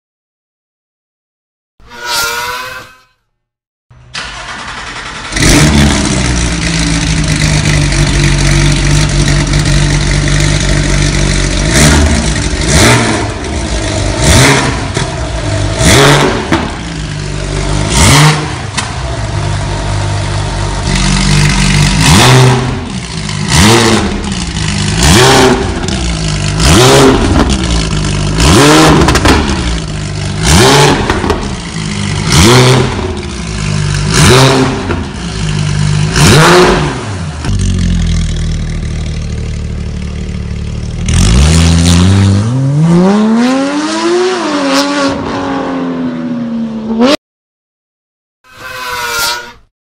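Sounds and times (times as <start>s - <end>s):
sports car engine idling: 6.0s - 12.7s, 24.1s - 25.0s, 27.5s - 28.4s, 29.5s - 30.4s, 37.5s - 41.1s.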